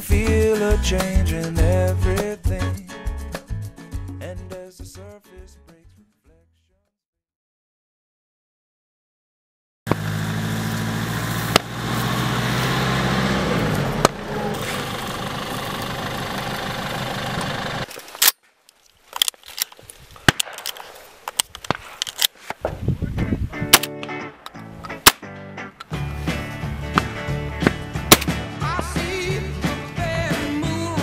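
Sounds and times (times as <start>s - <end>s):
van diesel engine driving: 9.9s - 17.9s
shotgun clicks and knocks: 19.1s - 22.4s, 23.7s - 25.9s, 27.0s - 28.4s.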